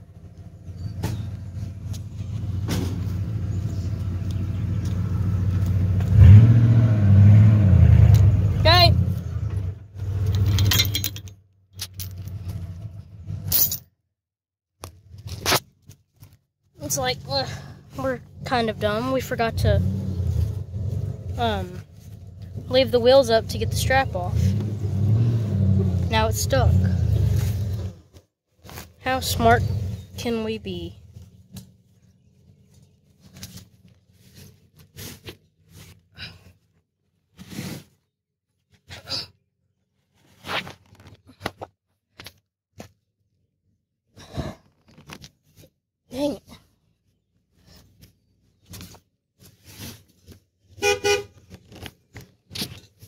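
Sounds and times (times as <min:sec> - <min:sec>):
truck engine idling: 0:00.0 - 0:06.4
chain and hook rattling: 0:10.2 - 0:12.4.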